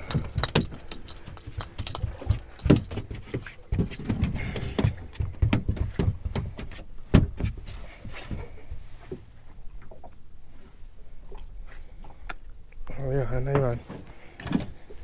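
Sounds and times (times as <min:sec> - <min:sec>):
knocks and thumps on boat: 0:01.7 - 0:07.7.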